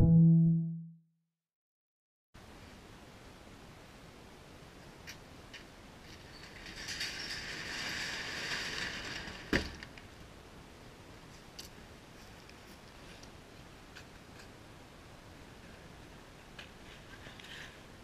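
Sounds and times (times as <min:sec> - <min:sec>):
garage door rattling along tracks: 0:06.3 - 0:09.8.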